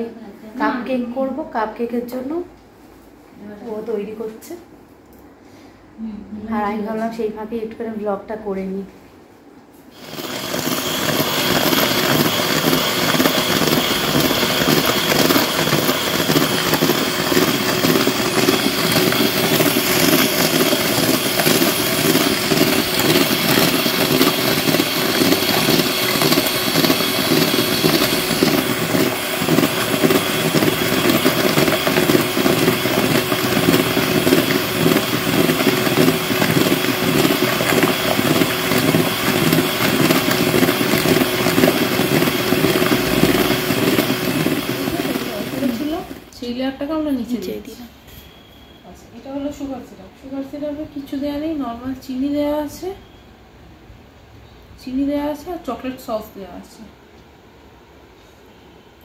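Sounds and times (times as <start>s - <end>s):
electric mixer whirring: 10.0s - 46.3s.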